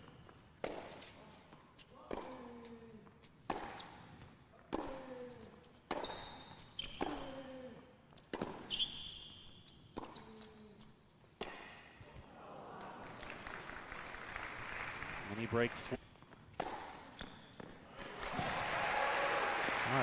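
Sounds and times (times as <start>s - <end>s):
racquets hitting tennis ball: 0.0s - 5.2s, 5.8s - 7.5s, 8.2s - 10.5s, 11.3s - 12.2s, 16.4s - 17.8s.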